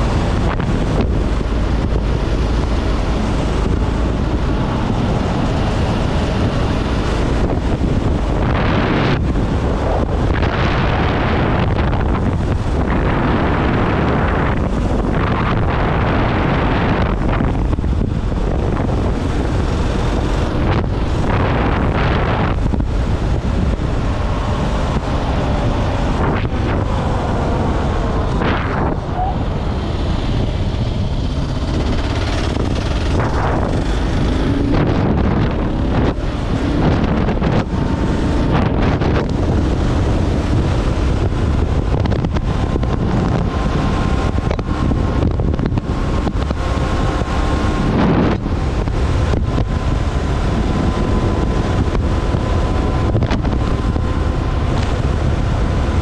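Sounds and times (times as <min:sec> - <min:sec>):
wind buffeting on microphone: 0:00.0 - 0:56.0
motorcycle engine: 0:22.0 - 0:45.5.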